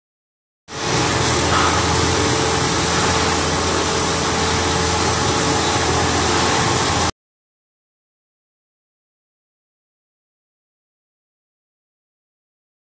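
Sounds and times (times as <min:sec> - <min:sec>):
extrusion machine humming and hissing: 0:00.7 - 0:07.1.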